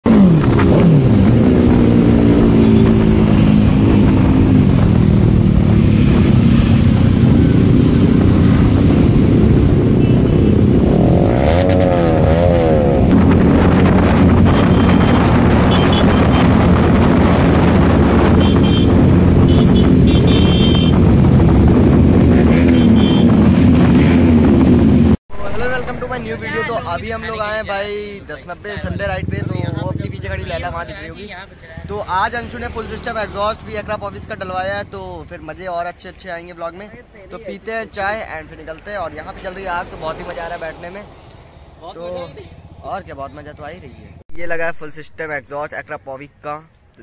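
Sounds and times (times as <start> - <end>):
motorcycle engines revving: 0.0 - 27.4, 28.6 - 35.3.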